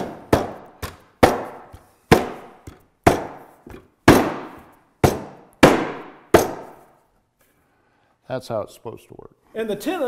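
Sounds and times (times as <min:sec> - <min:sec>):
fist pounding wooden stool: 0:00.0 - 0:06.8.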